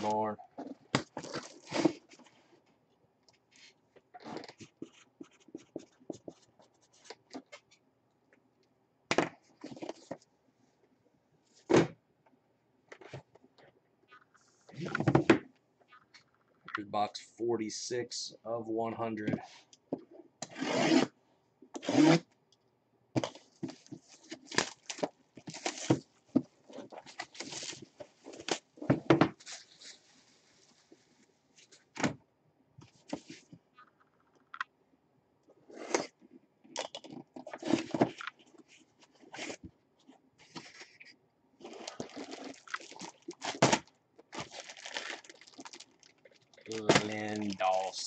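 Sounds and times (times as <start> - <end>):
plastic bag rustling: 41.6 - 48.0.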